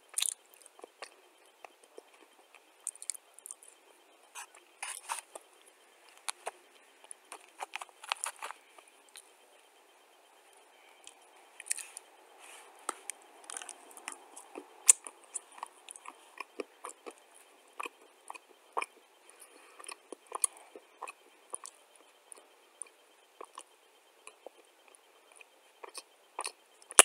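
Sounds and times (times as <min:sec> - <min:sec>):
person chewing crunchy clay: 0:00.1 - 0:03.7, 0:06.0 - 0:09.3, 0:11.0 - 0:12.0, 0:12.8 - 0:21.8, 0:23.4 - 0:27.0.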